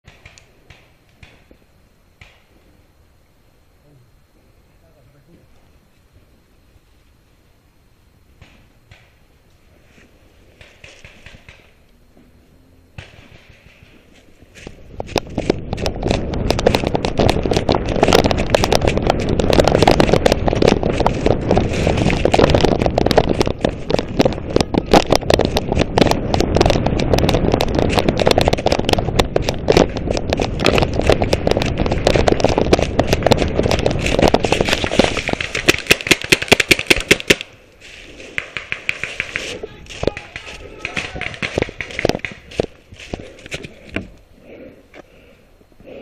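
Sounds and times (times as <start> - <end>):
running footsteps on dry leaves: 14.0 - 36.4, 37.8 - 43.8.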